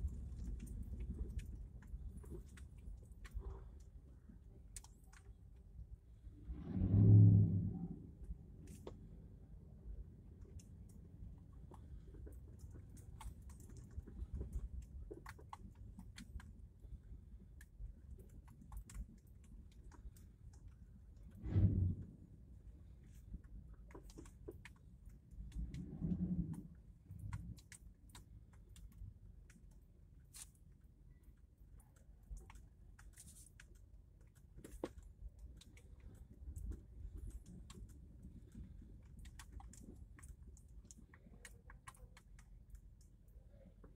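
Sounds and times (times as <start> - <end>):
light clicks and ticks: 0.0 - 5.7, 10.3 - 22.2, 22.8 - 43.9
car rumbling over cobblestones: 5.3 - 29.4.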